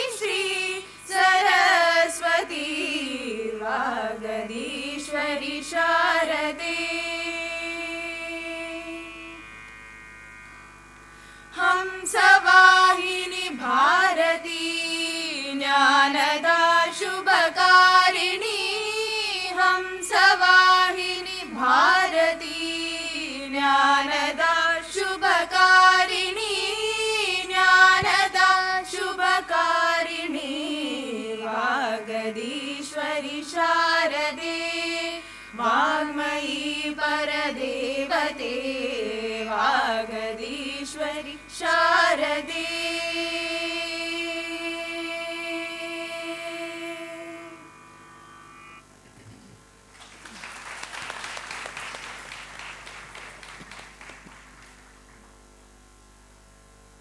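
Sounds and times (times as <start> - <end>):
women singing together: 0.0 - 9.2, 11.6 - 47.6.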